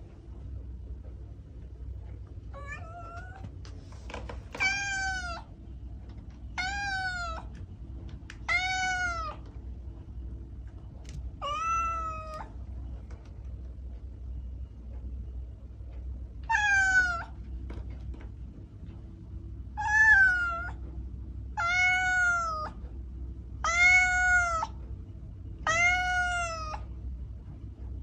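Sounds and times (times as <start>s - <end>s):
cat meowing: 2.5s - 3.5s, 4.5s - 5.5s, 6.6s - 7.6s, 8.4s - 9.4s, 11.4s - 12.5s, 16.4s - 17.4s, 19.8s - 20.8s, 21.6s - 22.8s, 23.6s - 24.8s, 25.6s - 26.9s.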